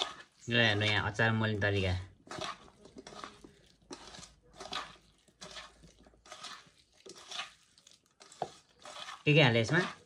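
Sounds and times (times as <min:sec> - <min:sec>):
hand squishing food in metal bowl: 0:00.0 - 0:10.0.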